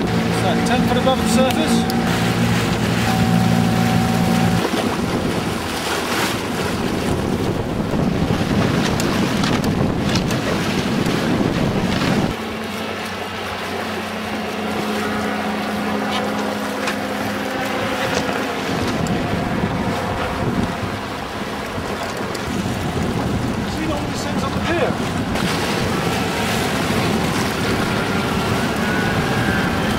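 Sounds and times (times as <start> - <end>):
steady low hum: 0.0 - 5.7
wind buffeting microphone: 0.0 - 12.8, 14.5 - 29.9
water rushing past hull: 0.0 - 29.9.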